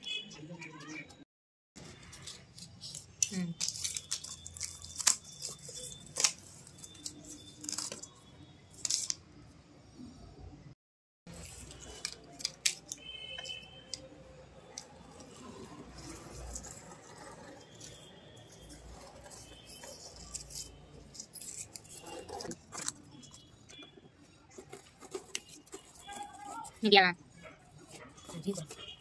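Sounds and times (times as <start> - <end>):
marker pen scraping on cardboard: 15.1 - 26.8.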